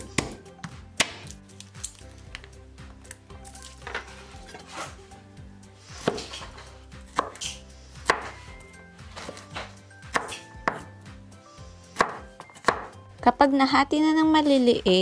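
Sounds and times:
knife chopping on wooden board: 0:00.0 - 0:00.4, 0:06.0 - 0:08.4, 0:09.2 - 0:10.9, 0:12.0 - 0:13.0.

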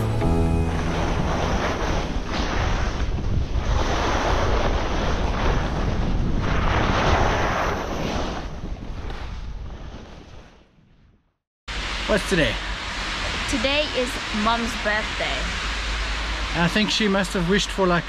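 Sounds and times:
wind noise on microphone: 0:00.3 - 0:11.3.

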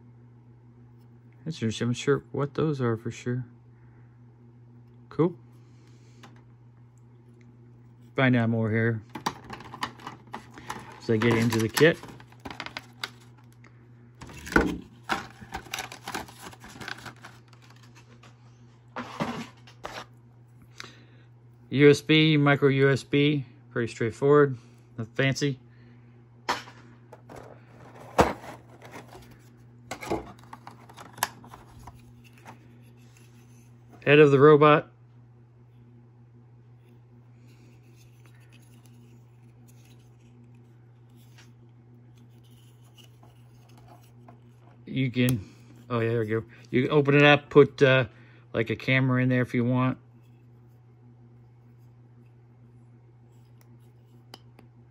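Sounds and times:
faint steady hum: 0:00.0 - 0:54.9
plastic rustles: 0:14.2 - 0:18.4.

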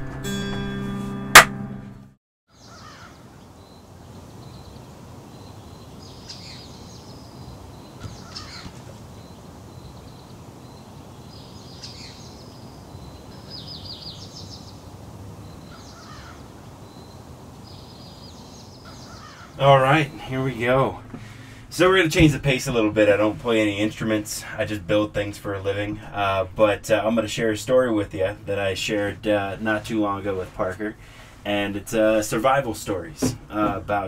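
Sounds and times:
scratchy bird calls: 0:06.2 - 0:09.2, 0:15.5 - 0:20.6.

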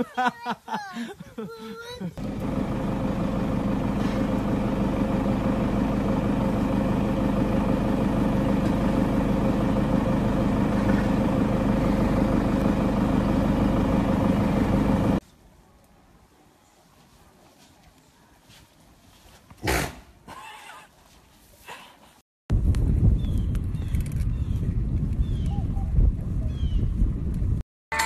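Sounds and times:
small engine running steadily: 0:02.2 - 0:15.2.

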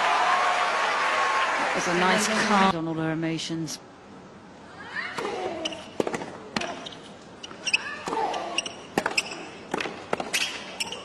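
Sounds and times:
tennis ball bouncing and struck: 0:05.2 - 0:11.0.

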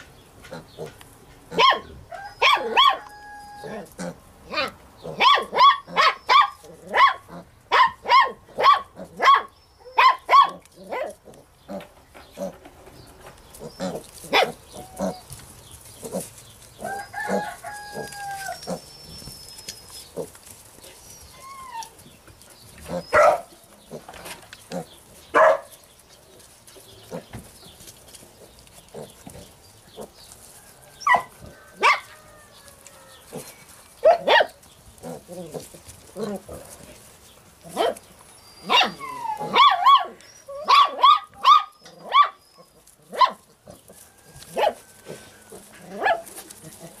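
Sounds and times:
rooster crowing: 0:02.0 - 0:03.9, 0:16.8 - 0:18.7, 0:30.4 - 0:33.4, 0:43.9 - 0:45.6
puppy yapping: 0:23.0 - 0:23.5, 0:37.7 - 0:43.4.

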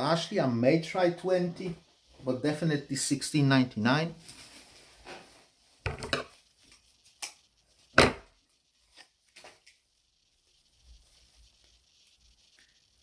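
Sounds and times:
clothes rustling and knocking: 0:04.3 - 0:06.4.

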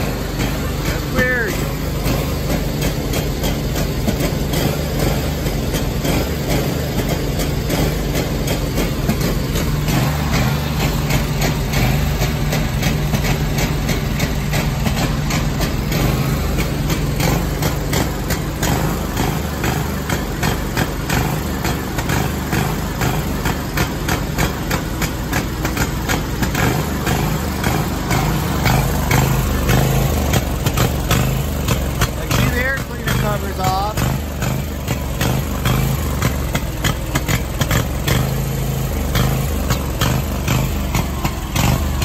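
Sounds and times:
mower engine running rough: 0:00.0 - 0:42.0.

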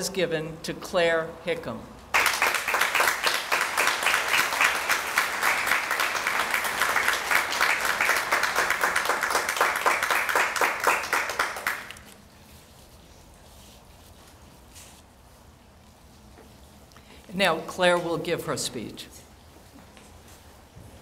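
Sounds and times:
audience applauding: 0:02.2 - 0:12.0.

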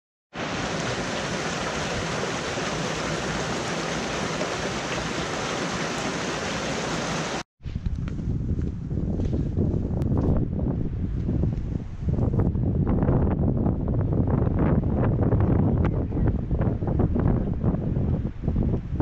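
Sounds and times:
stream water rushing: 0:00.4 - 0:07.4
wind buffeting microphone: 0:06.8 - 0:19.0.

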